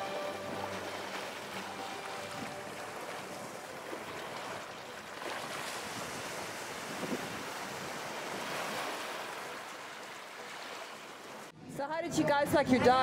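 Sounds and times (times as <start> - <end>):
sea waves: 0.0 - 11.6
wind buffeting microphone: 5.5 - 8.9.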